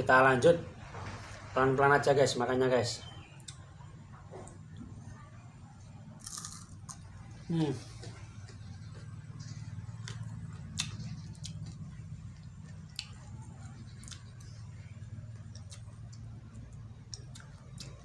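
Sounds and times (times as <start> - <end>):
steady low hum: 0.0 - 18.0
person chewing crunchy food: 6.2 - 7.0, 7.9 - 14.6, 15.4 - 18.0.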